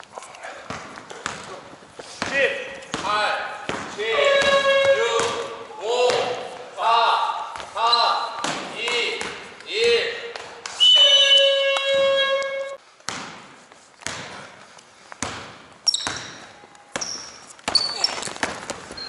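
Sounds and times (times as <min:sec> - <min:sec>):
basketball bouncing on gym floor: 0:00.6 - 0:06.4, 0:07.5 - 0:09.5, 0:13.0 - 0:14.6, 0:15.2 - 0:19.0
short high squeaks: 0:10.7 - 0:12.8, 0:15.8 - 0:18.4
loud steady tone: 0:10.8 - 0:12.8.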